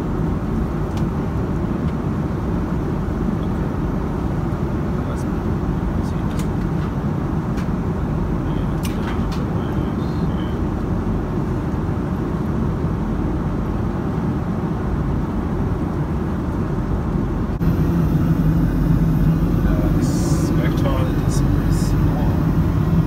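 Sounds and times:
airliner cabin roar: 0.0s - 23.0s
low hum: 7.9s - 23.0s.

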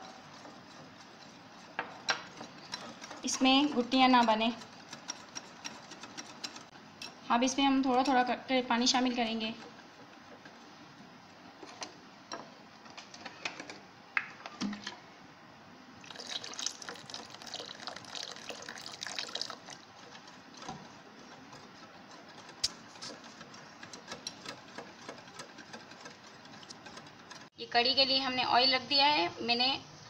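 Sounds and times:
whisk beating batter: 0.0s - 6.8s, 7.7s - 10.7s, 16.2s - 27.5s.

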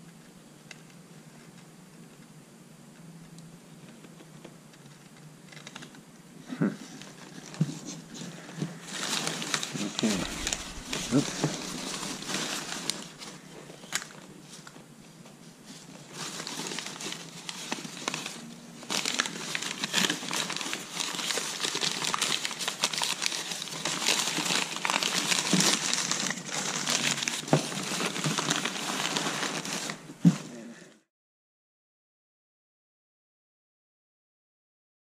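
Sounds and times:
paper crumpling and rustling: 7.0s - 30.5s.

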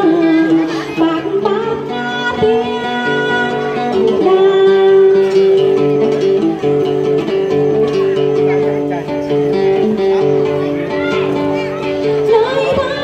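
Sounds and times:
woman singing long notes: 0.0s - 6.2s, 12.0s - 13.0s
plucked lute: 0.0s - 13.0s.

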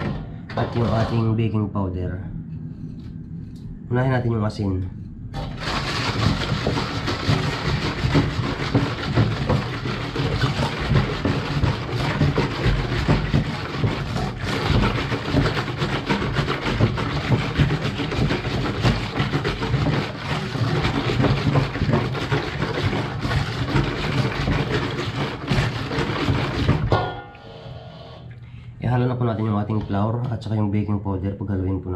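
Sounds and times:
whisk beating batter in metal bowl: 5.4s - 27.1s.

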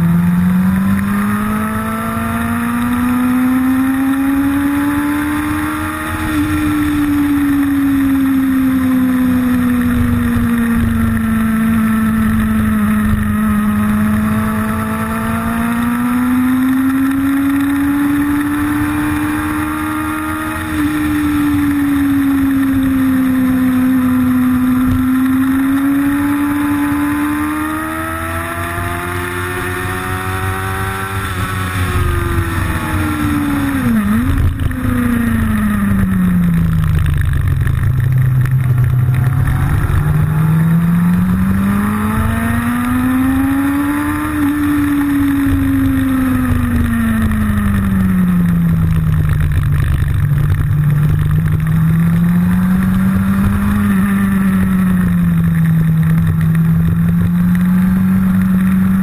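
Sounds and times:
motorcycle engine revving: 0.0s - 59.0s
steady rush of noise: 31.5s - 53.5s.

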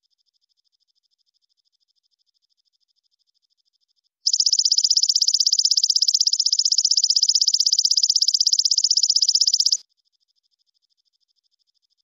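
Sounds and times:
insect high-pitched pulsed trill: 4.3s - 9.8s.

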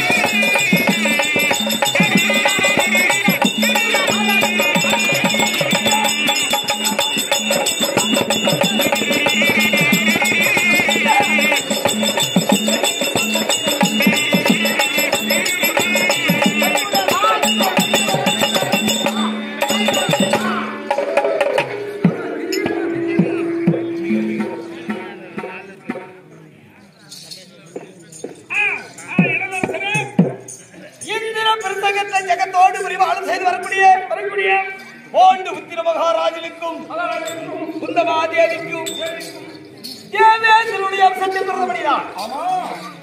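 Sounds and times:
high wavering ornamented melody: 0.0s - 25.9s, 36.9s - 40.2s
fast hand-drum strokes: 0.0s - 26.3s
ankle bells jingling: 0.0s - 33.8s, 36.1s - 43.0s
steady drone: 20.7s - 25.8s.

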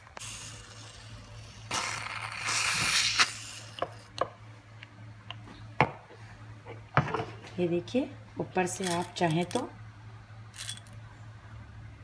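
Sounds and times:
whipped cream can hissing: 0.0s - 4.1s.

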